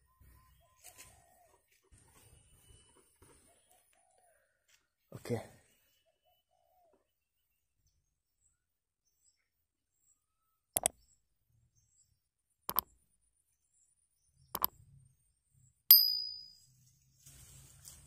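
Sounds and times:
mouse clicks: 10.8s - 11.0s, 12.7s - 12.9s, 14.5s - 14.8s
notification bell ding: 15.9s - 16.6s.

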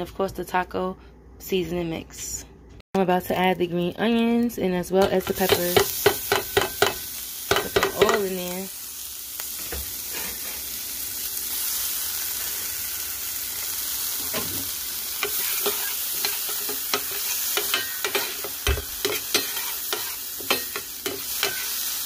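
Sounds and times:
vegetables sizzling in skillet: 5.0s - 22.0s.

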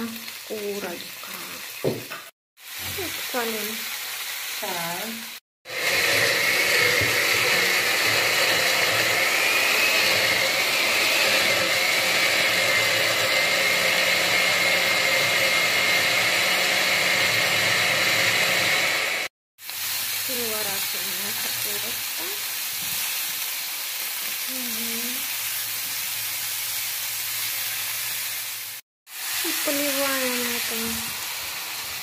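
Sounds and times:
blender motor whine: 5.7s - 19.3s, 28.3s - 32.0s.

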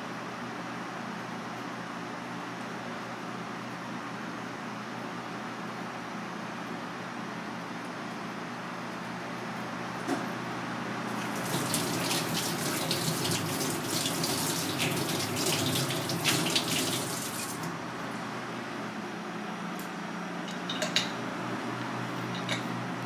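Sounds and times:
tap water running over hands: 11.2s - 17.7s.

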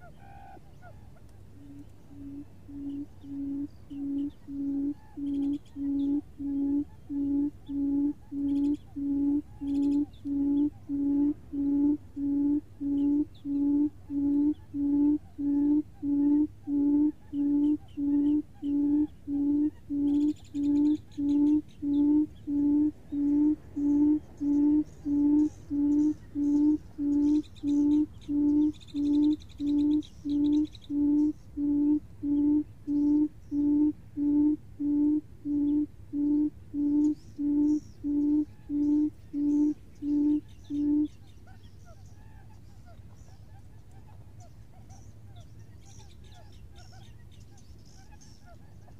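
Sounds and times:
faint high chirps: 0.0s - 48.9s
low hooting bird call: 0.0s - 48.9s.

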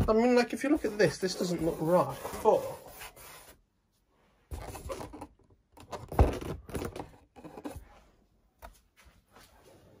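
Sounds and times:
rubbing and scraping on foam: 0.1s - 3.7s.

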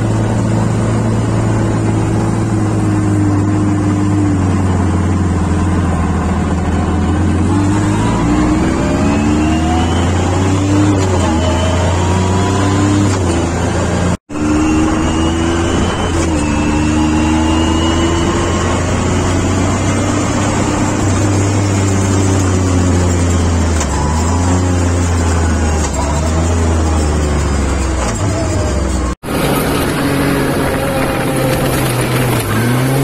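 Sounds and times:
off-road vehicle engine: 0.0s - 33.0s
gravel noise: 14.4s - 33.0s.

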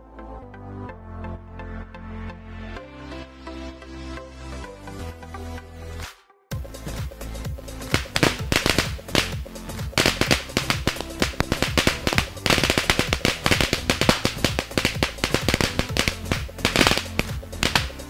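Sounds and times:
music with steady bass: 0.0s - 18.0s
crackling firecracker pops: 7.9s - 18.0s.

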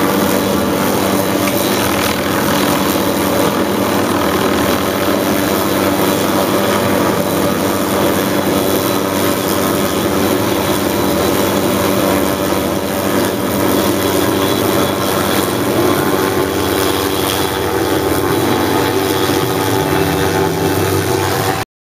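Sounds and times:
helicopter engine and rotor drone: 0.0s - 21.7s.

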